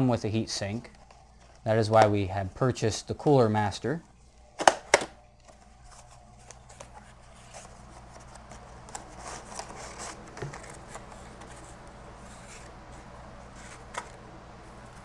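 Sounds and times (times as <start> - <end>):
cardboard and paper rustling: 5.4 - 14.2.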